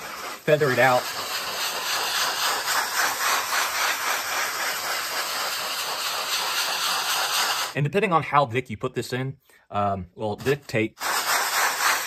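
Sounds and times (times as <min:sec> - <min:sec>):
sanding block scraping: 0:00.0 - 0:07.8, 0:10.4 - 0:12.0.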